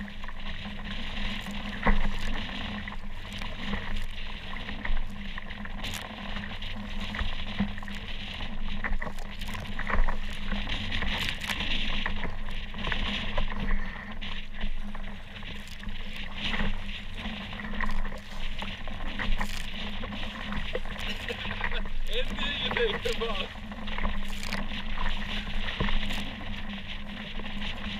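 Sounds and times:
water splashing against kayak: 0:00.0 - 0:27.9.

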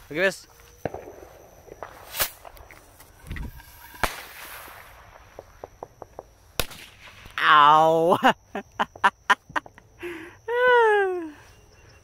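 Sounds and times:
firework hiss: 0:01.8 - 0:07.4
firework rocket cracks: 0:01.8 - 0:07.4.

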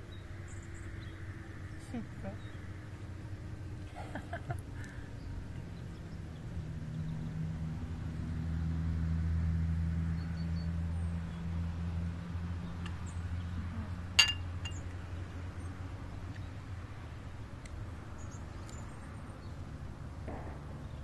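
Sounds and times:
low steady hum: 0:00.0 - 0:21.0
sharp clink: 0:14.2 - 0:14.8.

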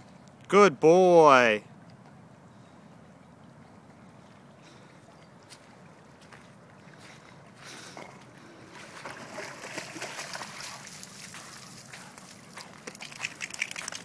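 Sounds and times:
dog splashing through water: 0:07.7 - 0:14.0
water splattering: 0:08.8 - 0:11.9, 0:12.8 - 0:14.0.

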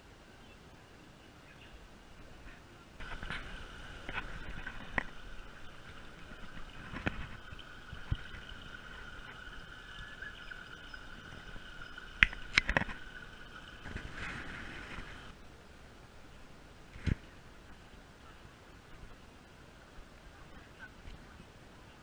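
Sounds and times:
steady high-pitched hum: 0:01.6 - 0:16.6.

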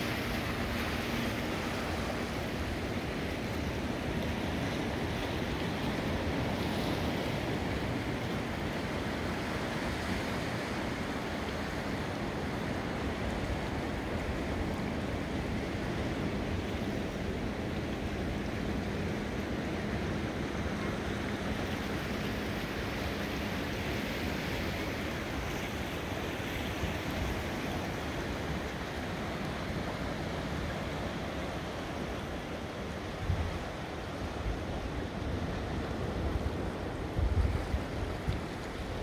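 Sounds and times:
wind buffeting microphone: 0:34.5 - 0:39.0.

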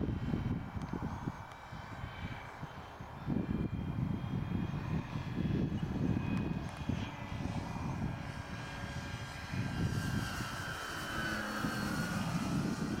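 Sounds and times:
model airplane motor whining: 0:00.0 - 0:13.0.

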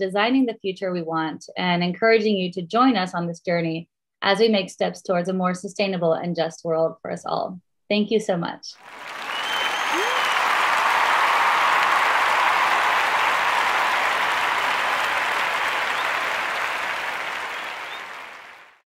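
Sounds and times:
crowd applauding: 0:08.8 - 0:18.8
high whistle: 0:08.9 - 0:18.7.

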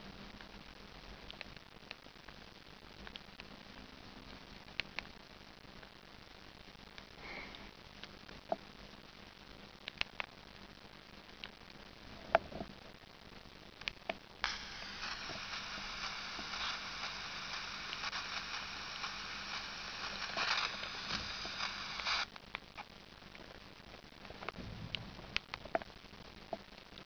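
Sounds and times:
radio through small phone speaker: 0:14.4 - 0:22.3.

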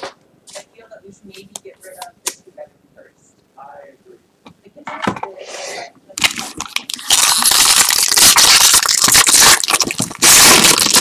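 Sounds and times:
foil wrapper crinkling: 0:06.2 - 0:11.0.

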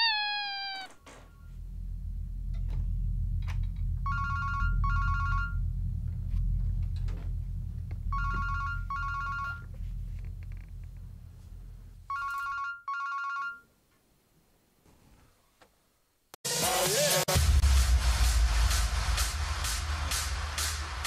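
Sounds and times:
short falling squeal: 0:00.0 - 0:01.5
low steady drone: 0:01.4 - 0:12.1
telephone ringing: 0:04.1 - 0:05.6, 0:08.1 - 0:09.7, 0:12.1 - 0:13.7.

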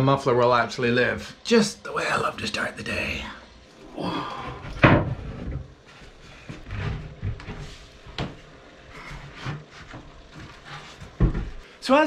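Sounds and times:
wooden floor panel knock and scrape: 0:09.4 - 0:11.6.

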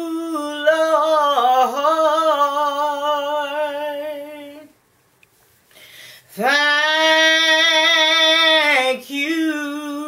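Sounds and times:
woman singing a cappella: 0:00.0 - 0:04.8, 0:06.3 - 0:10.0.

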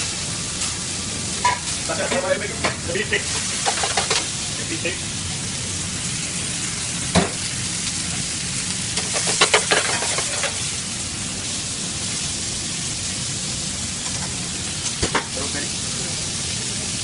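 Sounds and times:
meat sizzling in skillet: 0:00.0 - 0:17.0.

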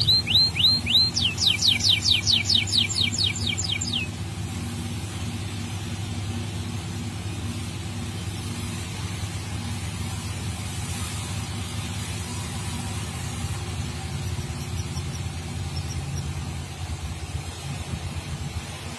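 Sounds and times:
canary singing: 0:00.0 - 0:04.2, 0:14.1 - 0:16.9.

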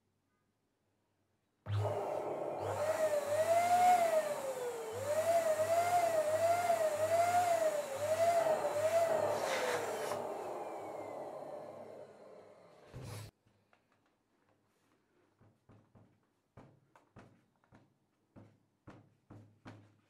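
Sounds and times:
balloon pump motor whine: 0:01.7 - 0:13.3.

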